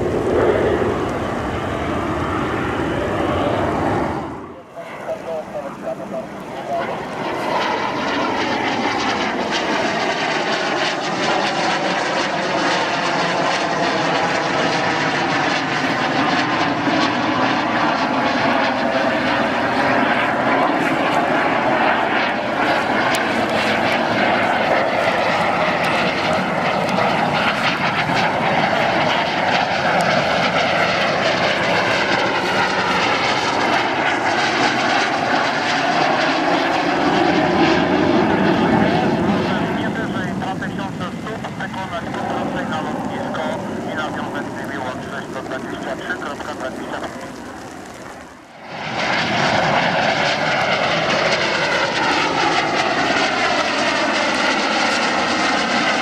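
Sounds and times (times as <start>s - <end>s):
jet engine overhead: 0.0s - 56.0s.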